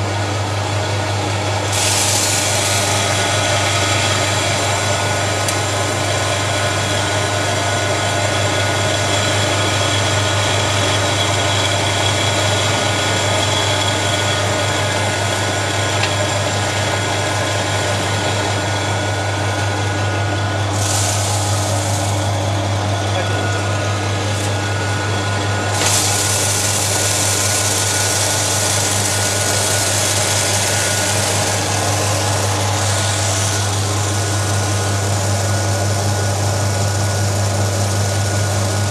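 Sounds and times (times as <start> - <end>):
motor humming: 1.1 - 38.9
rice pouring: 1.7 - 19.4, 20.7 - 35.9
bright hiss: 1.8 - 5.0.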